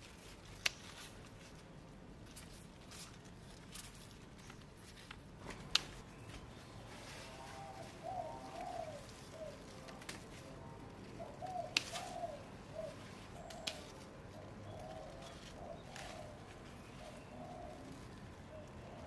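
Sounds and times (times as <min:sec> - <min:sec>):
dove cooing: 0:06.6 - 0:19.0.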